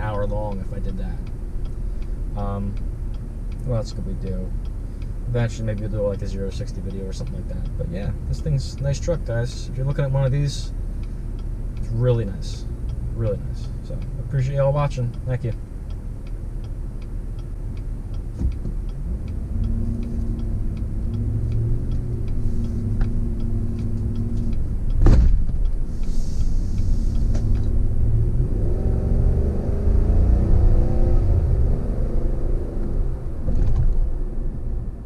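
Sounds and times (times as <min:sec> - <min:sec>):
light regular ticking: 0:00.0 - 0:35.0
pickup engine rumbling and revving: 0:00.0 - 0:35.0
sharp knock: 0:25.0 - 0:25.6.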